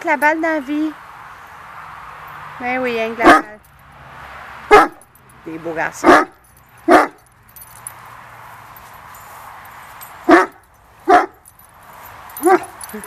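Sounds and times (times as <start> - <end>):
dog barking: 3.2 - 3.5, 4.7 - 5.0, 6.0 - 7.2, 10.3 - 11.4, 12.4 - 12.8.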